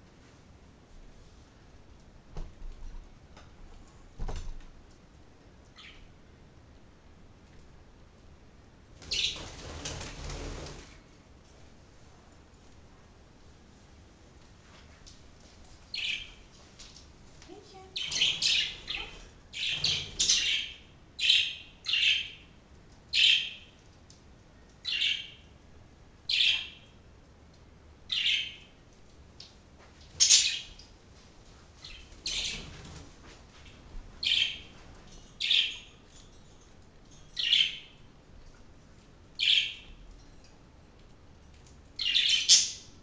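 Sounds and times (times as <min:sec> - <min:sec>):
budgerigars chirping: 0:18.0 - 0:22.4.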